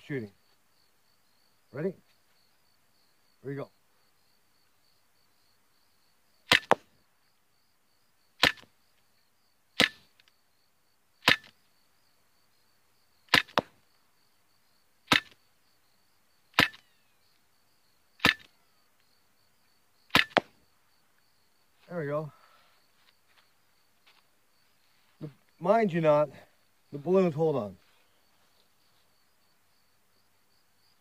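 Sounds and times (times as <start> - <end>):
air pistol shots: 6.5 - 6.8, 8.4 - 8.7, 9.8 - 10.1, 11.2 - 11.5, 13.3 - 13.7, 15.1 - 15.4, 16.6 - 16.8, 18.2 - 18.5, 20.1 - 20.5
pellet snap: 6.5 - 6.8, 8.4 - 8.7, 9.8 - 10.1, 11.2 - 11.6, 13.3 - 13.8, 15.1 - 15.4, 16.6 - 16.8, 18.2 - 18.5, 20.1 - 20.5.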